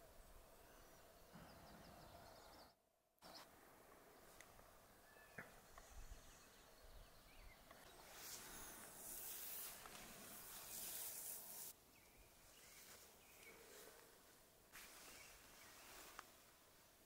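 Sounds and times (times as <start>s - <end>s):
faint bird chirps: 5.0s - 8.9s
high hiss: 7.9s - 11.8s.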